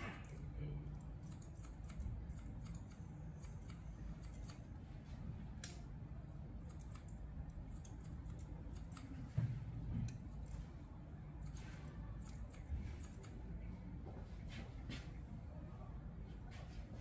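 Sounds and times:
low room hum: 0.0 - 17.0
scissors snipping hair: 0.1 - 4.8, 6.6 - 9.4, 11.4 - 13.4.

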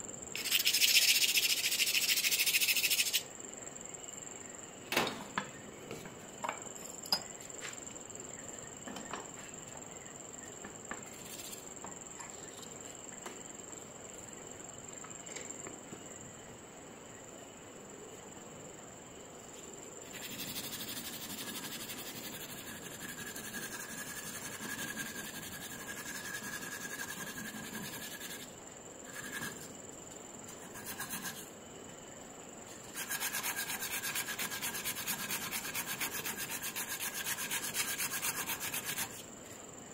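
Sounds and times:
abrasive strip rubbing metal: 0.4 - 3.2.

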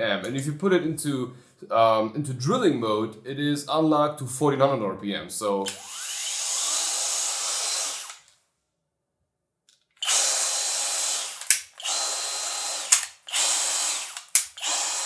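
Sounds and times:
cordless drill whining: 5.6 - 8.3, 10.0 - 15.0
drill clicks: 5.6 - 8.4, 9.7 - 15.0.

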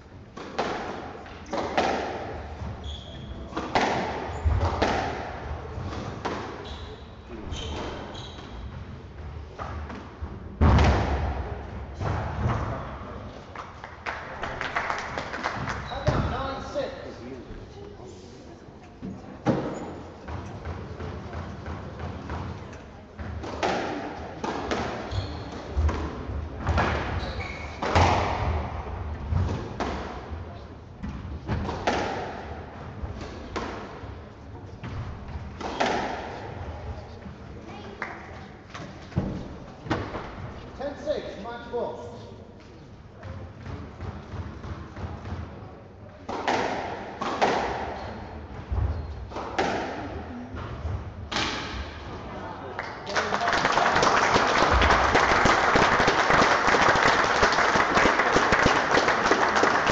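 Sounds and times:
squash ball hits echoing: 0.4 - 6.6, 9.6 - 12.8, 23.2 - 30.2, 31.1 - 32.6, 34.8 - 36.7, 46.2 - 52.1
shoes squeaking on wooden floor: 2.7 - 3.6, 6.6 - 8.8, 25.1 - 25.6, 27.1 - 27.9.

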